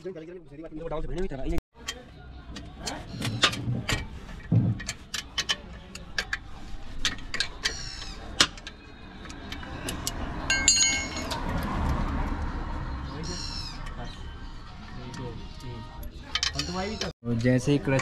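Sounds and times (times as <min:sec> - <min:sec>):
steel tools clinking: 0:07.0 - 0:11.6, 0:16.0 - 0:17.1.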